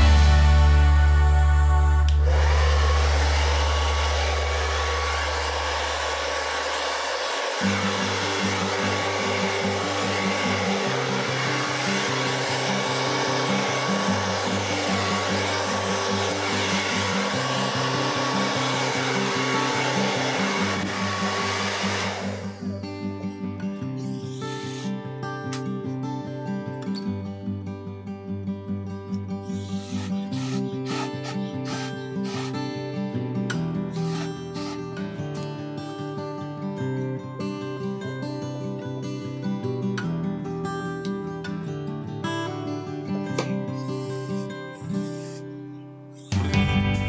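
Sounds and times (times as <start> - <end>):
hair dryer blowing: 0.0 - 23.4, 29.5 - 32.7, 34.0 - 34.8
music with walking bass line: 46.4 - 47.0.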